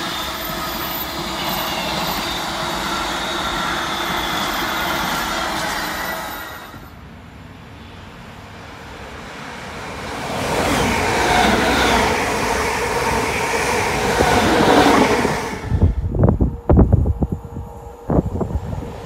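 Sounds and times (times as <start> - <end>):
electric train passing: 0.0 - 19.0.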